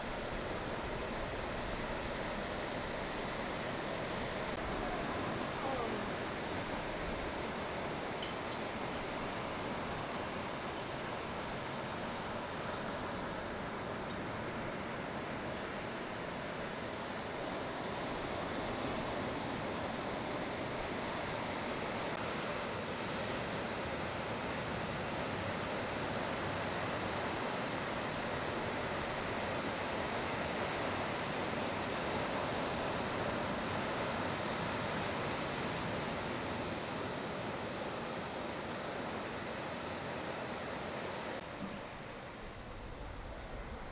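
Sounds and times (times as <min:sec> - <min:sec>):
ocean surf breaking: 0:00.0 - 0:43.9.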